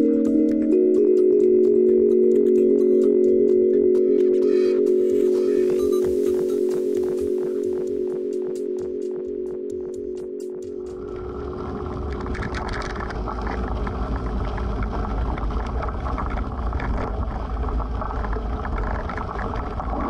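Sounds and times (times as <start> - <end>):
chime-like music: 0.0 - 11.2
wind buffeting microphone: 11.3 - 20.0.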